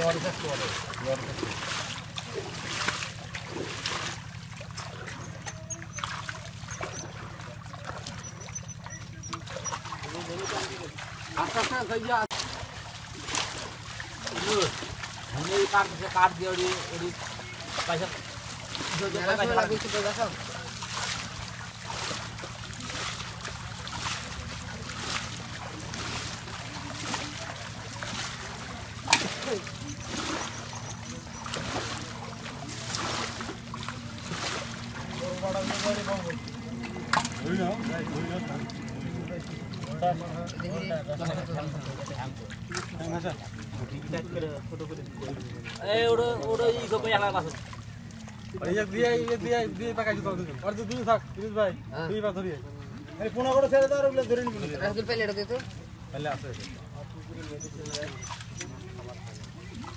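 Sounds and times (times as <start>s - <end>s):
steady low hum: 0.0s - 45.7s
water splashing and trickling: 0.0s - 59.9s
fish thrashing in net: 8.8s - 38.8s
steady low drone: 20.2s - 45.6s.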